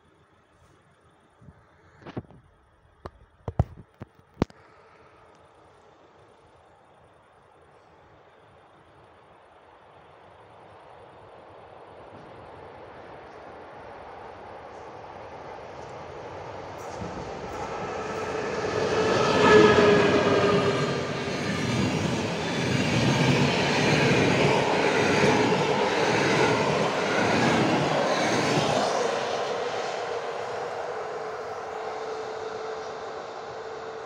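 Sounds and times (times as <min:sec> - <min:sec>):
passenger train passing: 0:08.2 - 0:34.0
train wheels clattering on rails: 0:15.8 - 0:30.2.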